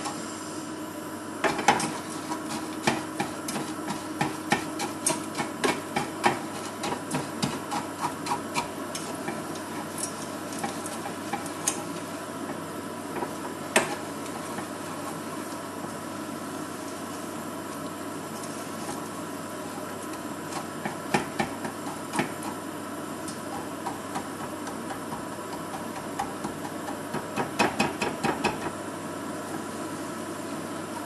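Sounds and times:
wooden spoon scraping saucepan: 1.5s - 12.0s.

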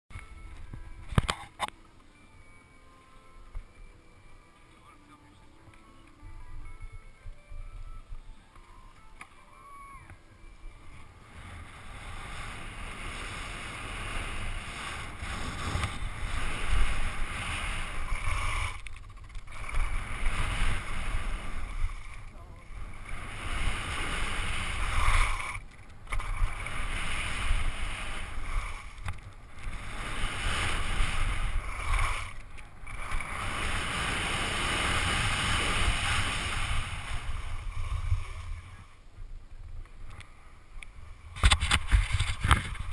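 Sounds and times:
skis scraping over snow: 10.7s - 39.0s, 41.1s - 42.9s
wind buffeting microphone: 10.7s - 42.9s.

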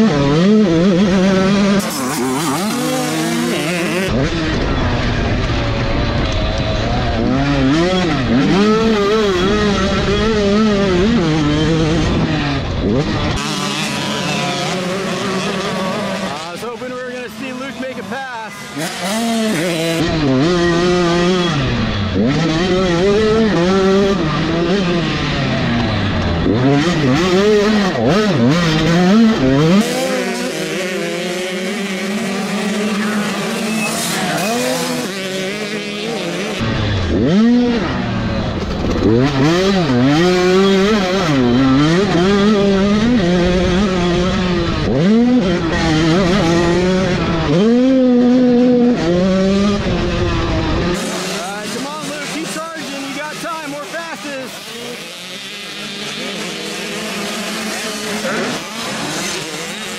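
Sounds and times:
motorbike engine revving: 0.0s - 59.9s.

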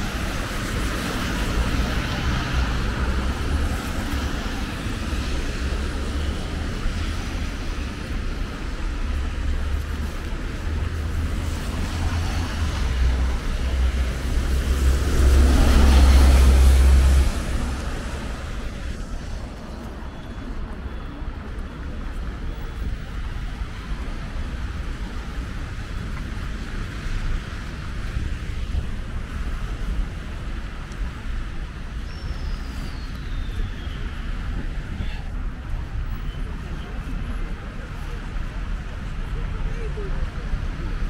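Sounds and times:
tyres hissing on wet road: 0.0s - 20.0s
low traffic rumble: 0.0s - 41.0s.

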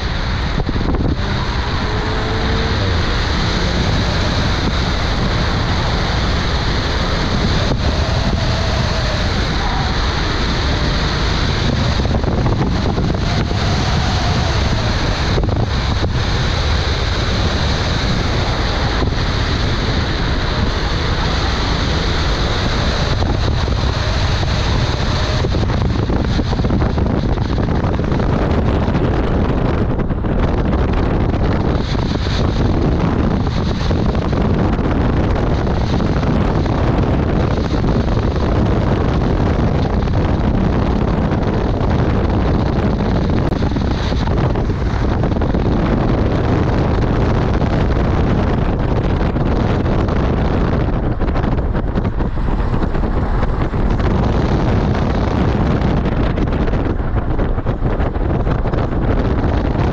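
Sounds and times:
car engine at speed: 0.0s - 59.9s
tyres on road: 0.0s - 59.9s
wind buffeting microphone: 0.0s - 59.9s.

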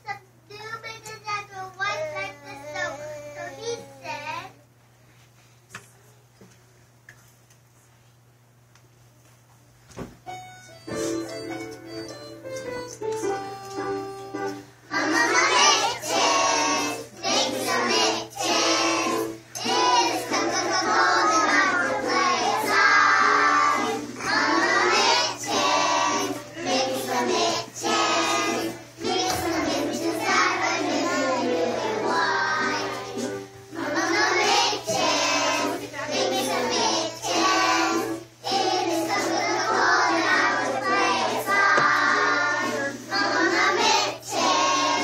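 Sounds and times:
held keyboard notes: 10.3s - 15.4s
children singing: 14.9s - 45.0s.

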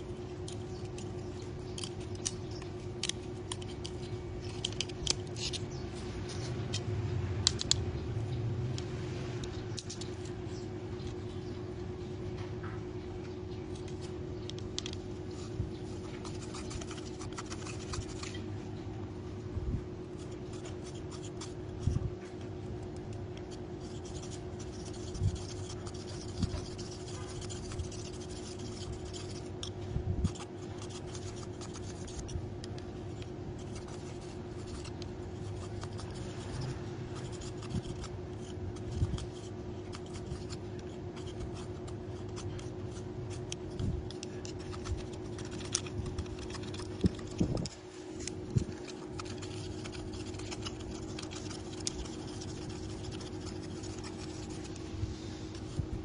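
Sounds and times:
steady hum: 0.0s - 56.0s
knife scraping bamboo: 0.4s - 7.8s, 13.8s - 18.4s, 23.8s - 55.8s.

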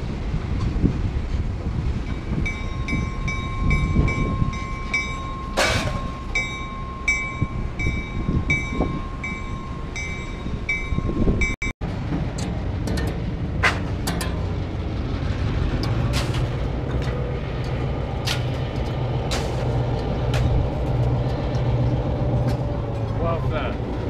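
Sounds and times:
wind buffeting microphone: 0.0s - 24.0s
locomotive bell ringing: 2.0s - 11.7s.

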